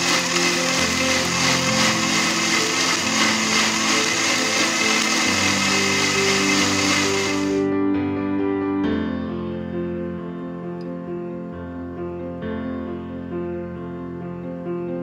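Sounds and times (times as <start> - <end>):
blender motor running: 0.0 - 7.6.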